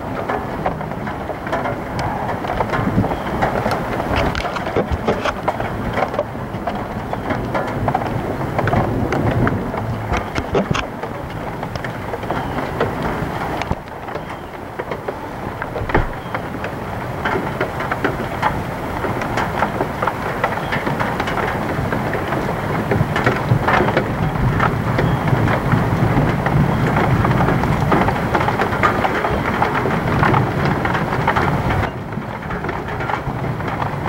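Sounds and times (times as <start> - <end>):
heavy rain: 0.0 - 34.0
low rumble: 1.8 - 17.2.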